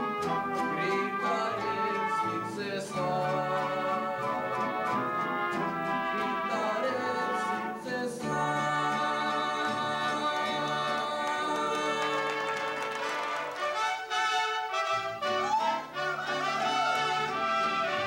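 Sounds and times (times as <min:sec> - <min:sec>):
man singing with held notes: 0:00.0 - 0:12.4
band of violins and guitars: 0:00.0 - 0:18.0.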